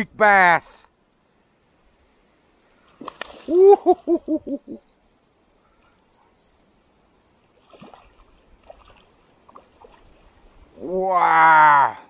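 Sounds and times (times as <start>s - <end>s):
faint water splashes: 2.0s - 4.2s, 5.6s - 11.5s
man chuckling: 3.5s - 4.8s.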